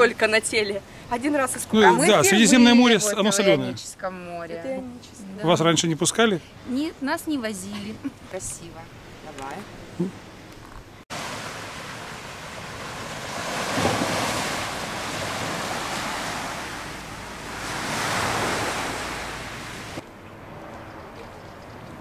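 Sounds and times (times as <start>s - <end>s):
wind rumbling on microphone: 8.9s - 22.0s
surf washing onto shingle: 11.1s - 20.0s.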